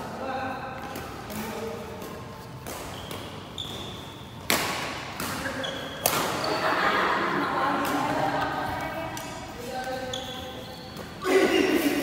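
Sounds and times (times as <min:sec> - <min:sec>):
rackets hitting shuttlecock: 0:00.8 - 0:06.6, 0:07.7 - 0:10.0.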